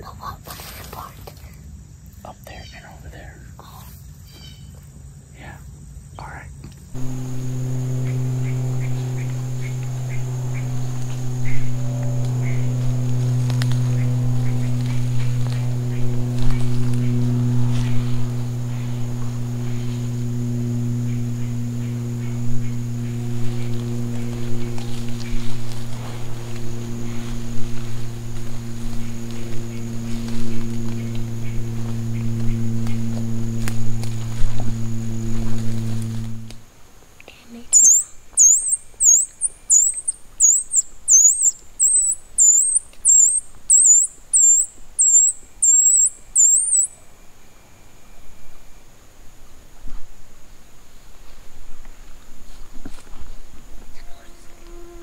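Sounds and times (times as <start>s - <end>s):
faint high whine: 6.2s - 49.0s, 53.7s - 55.0s
faint short calls: 7.0s - 36.5s, 37.7s - 46.9s
low hum with overtones: 7.0s - 48.8s
shrill squirrel distress squeals: 37.7s - 46.9s.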